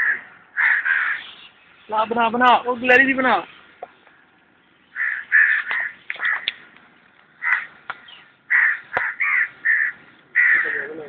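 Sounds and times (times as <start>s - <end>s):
crows cawing: 0.0s - 1.5s, 4.9s - 6.7s, 7.3s - 11.0s.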